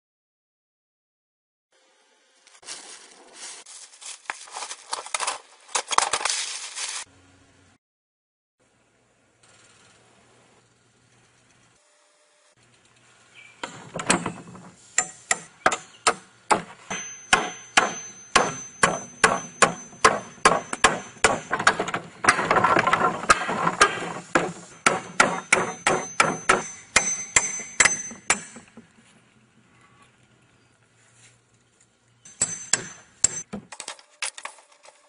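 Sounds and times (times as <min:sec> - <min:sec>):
hammer striking pry bar: 0:13.6 - 0:28.8, 0:32.3 - 0:33.8.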